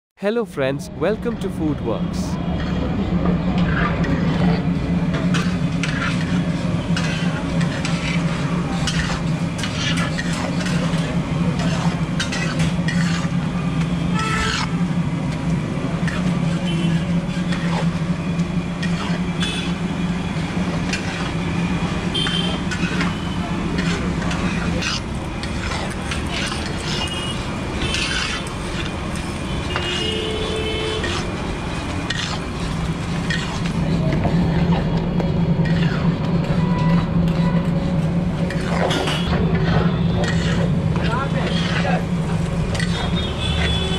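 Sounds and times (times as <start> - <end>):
low street hum: 0.2 - 43.9
spatula scraping on iron pan: 5.3 - 13.4, 23.8 - 29.0, 30.9 - 31.4, 32.1 - 33.8, 35.6 - 37.5, 38.5 - 43.7.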